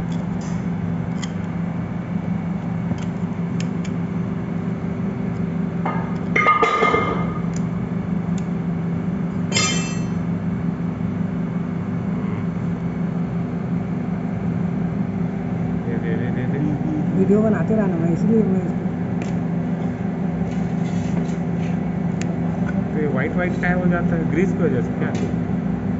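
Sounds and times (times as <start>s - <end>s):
machinery hum: 0.0s - 25.9s.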